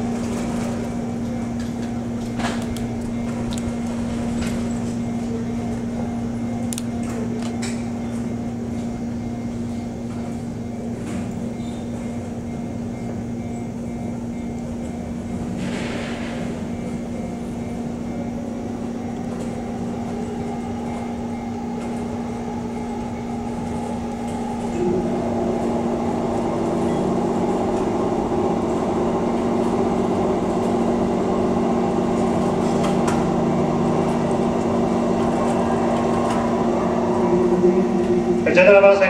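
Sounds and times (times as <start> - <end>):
electric train electrical hum: 0.0 - 39.0.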